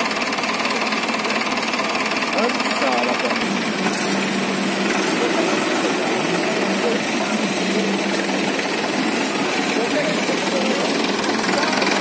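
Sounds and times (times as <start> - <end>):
diesel tractor engines running: 0.0 - 12.0
background voices: 4.8 - 12.0.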